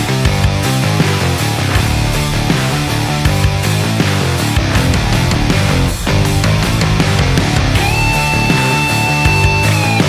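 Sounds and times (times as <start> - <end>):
loud rock music: 0.0 - 10.0.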